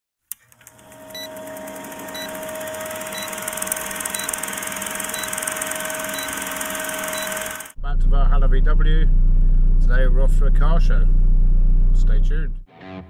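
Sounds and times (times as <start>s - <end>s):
film projector clatter: 0.3s - 7.8s
steady hum: 0.6s - 12.2s
short blips: 1.1s - 7.8s.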